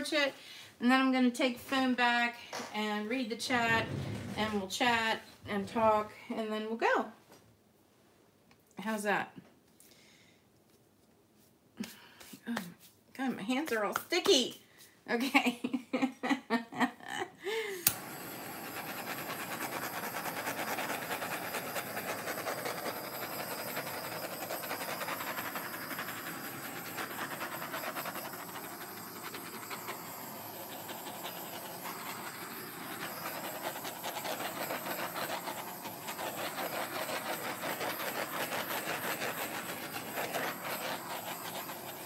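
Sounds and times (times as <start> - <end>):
gas torch igniting click: 17.8 - 19.0
hissing torch flame: 17.8 - 42.0.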